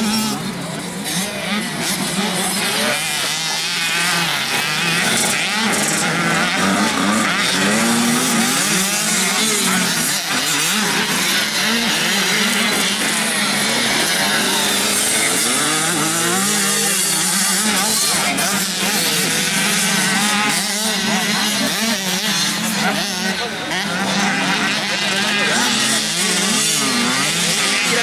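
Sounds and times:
motocross bike engines revving: 0:00.0 - 0:28.0.

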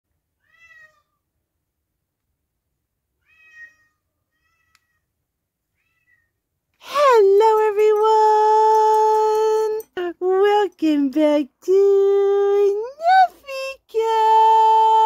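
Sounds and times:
cat meowing: 0:00.4 - 0:01.1, 0:03.2 - 0:05.1, 0:05.7 - 0:06.4.

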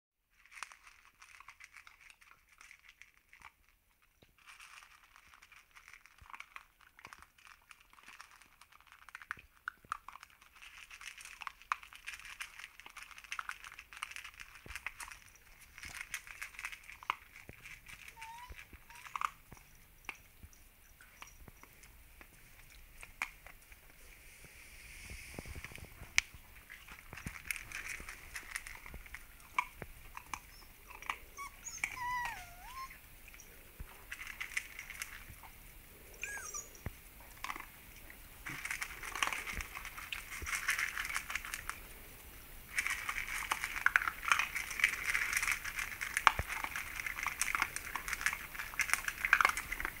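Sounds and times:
kibble crunching on metal tray: 0:00.3 - 0:20.2, 0:25.6 - 0:32.2, 0:32.8 - 0:35.5, 0:37.2 - 0:37.8, 0:38.4 - 0:41.9, 0:42.6 - 0:50.0
puppies whining: 0:18.0 - 0:19.7, 0:30.3 - 0:33.0, 0:36.2 - 0:36.9.

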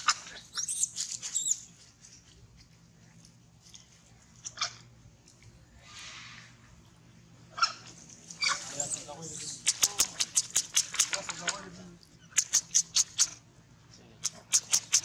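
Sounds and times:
monkeys squeaking: 0:00.0 - 0:01.8, 0:07.6 - 0:13.4, 0:14.2 - 0:15.0
dry leaves rustling: 0:07.8 - 0:10.3.

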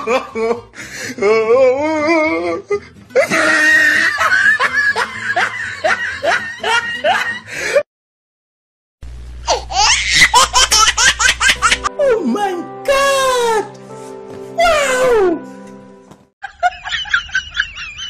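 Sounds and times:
hearty human laughter: 0:03.2 - 0:07.8, 0:16.4 - 0:18.0.

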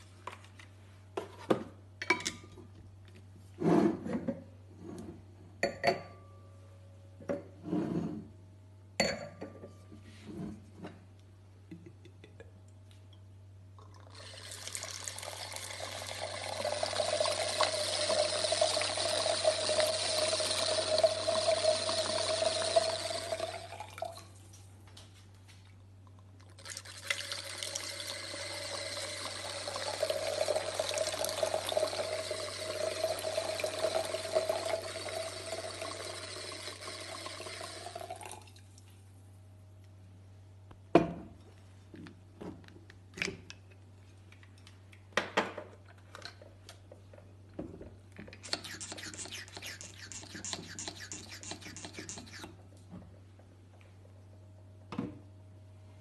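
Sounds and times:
wine pouring into glass: 0:13.8 - 0:24.2, 0:26.6 - 0:38.6.

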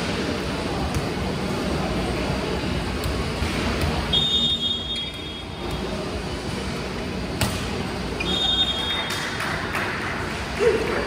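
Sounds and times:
large hall background noise: 0:00.0 - 0:11.0
volleyball striking court floor: 0:07.3 - 0:07.8.

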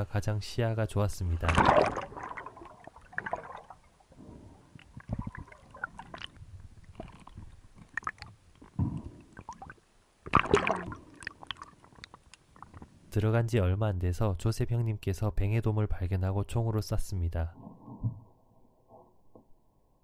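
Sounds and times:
water surges: 0:01.4 - 0:04.2, 0:09.3 - 0:12.1
underwater clicks and crackles: 0:01.4 - 0:13.0.

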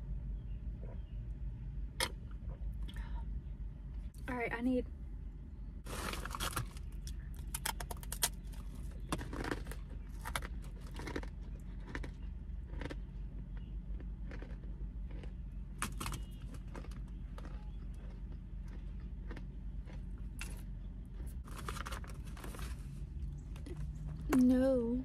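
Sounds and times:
steady low hum: 0:00.0 - 0:25.0
plastic snack bag crinkling: 0:05.9 - 0:12.1, 0:21.4 - 0:22.9.

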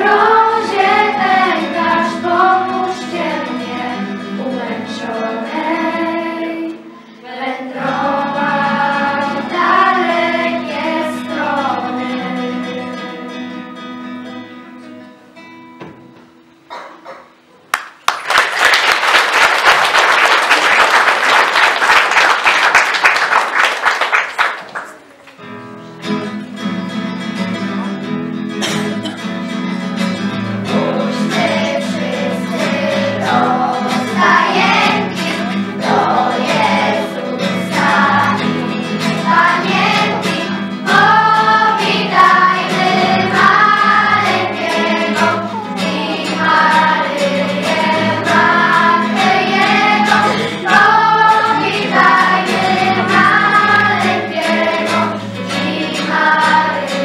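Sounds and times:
girls' choir singing: 0:00.0 - 0:13.5, 0:30.5 - 0:57.0
audience applauding: 0:17.7 - 0:25.4
instrumental accompaniment: 0:25.5 - 0:57.0.

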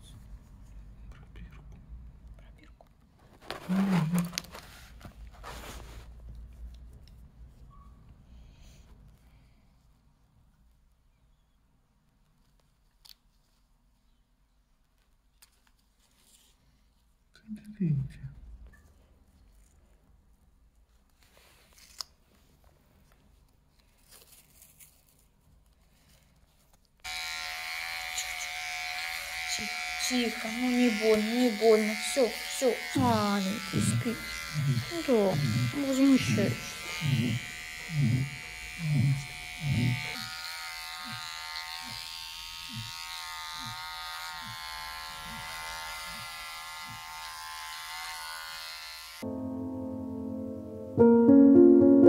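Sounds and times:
electric clippers buzzing: 0:27.1 - 0:49.4.

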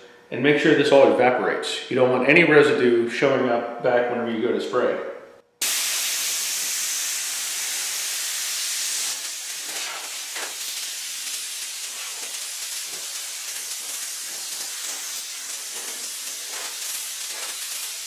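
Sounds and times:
compressed air hissing from hose: 0:05.6 - 0:18.0.

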